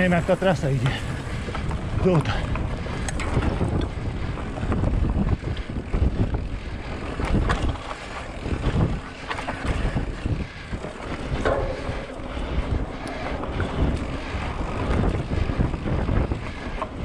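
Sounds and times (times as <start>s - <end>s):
bike knocks and rattles: 0.0s - 17.0s
wind buffeting microphone: 0.0s - 17.0s.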